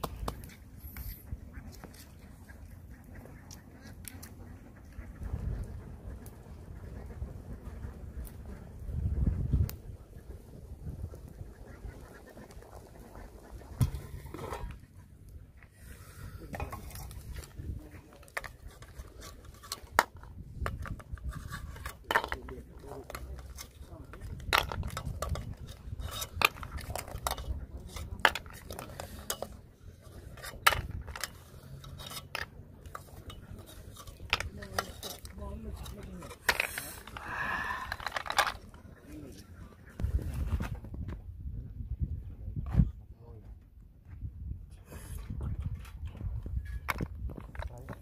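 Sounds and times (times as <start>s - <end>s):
wind rumble on microphone: 4.8s - 14.8s, 16.4s - 21.9s, 23.2s - 28.6s, 39.6s - 48.0s.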